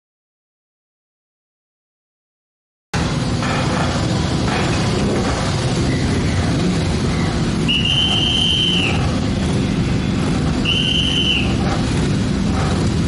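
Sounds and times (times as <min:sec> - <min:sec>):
motorcycles idling: 0:03.0 - 0:13.0
whistle blasts: 0:07.6 - 0:09.2, 0:10.5 - 0:11.7.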